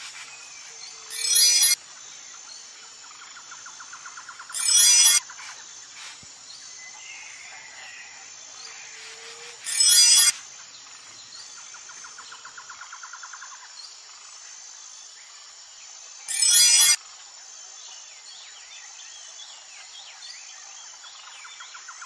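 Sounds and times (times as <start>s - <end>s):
insects chirping: 0.0s - 22.0s
birds chirping: 0.9s - 1.8s, 3.5s - 5.4s
fast chirping trill: 1.1s - 1.8s, 4.5s - 5.2s, 9.7s - 10.3s, 16.3s - 17.0s.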